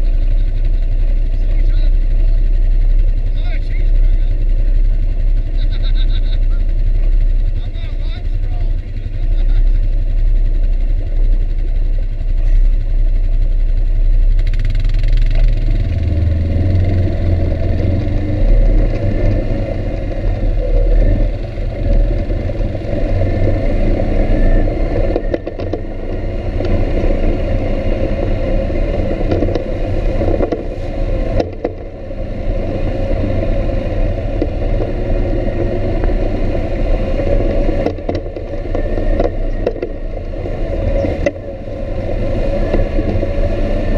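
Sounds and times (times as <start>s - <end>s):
atv engine rumbling: 0.0s - 43.9s
knocks from bumpy ride: 25.1s - 26.8s, 29.1s - 31.9s, 37.6s - 41.6s.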